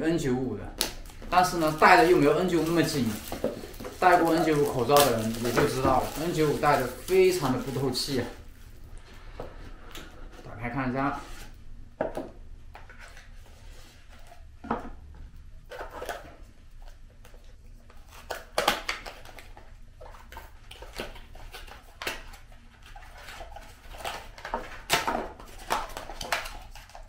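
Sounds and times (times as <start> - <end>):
package rustling and clicking: 0.8 - 8.4, 18.2 - 27.0.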